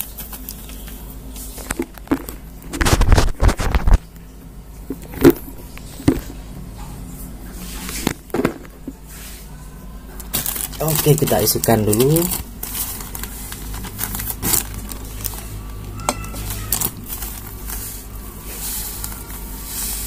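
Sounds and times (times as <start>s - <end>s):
knocks and handling noises: 1.6s - 4.0s, 4.9s - 6.4s, 7.8s - 9.0s.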